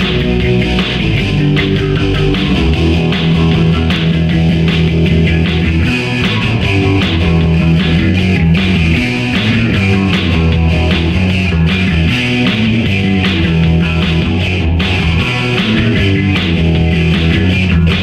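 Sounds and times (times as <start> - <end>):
bass guitar: 0.0 - 18.0
drums keeping a beat: 0.0 - 18.0
electric guitar: 0.0 - 18.0.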